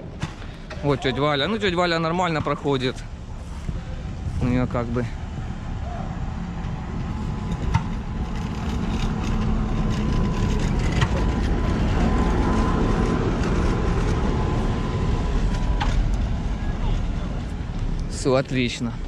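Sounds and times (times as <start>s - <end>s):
thin steady whine: 1.3s - 19.0s
tram wheels running on rails: 4.5s - 19.0s.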